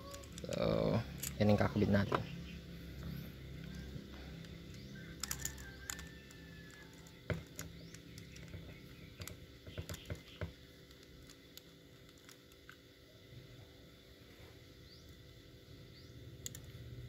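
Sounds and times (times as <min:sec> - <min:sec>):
metal parts clicking: 0:00.0 - 0:01.5, 0:03.6 - 0:08.6.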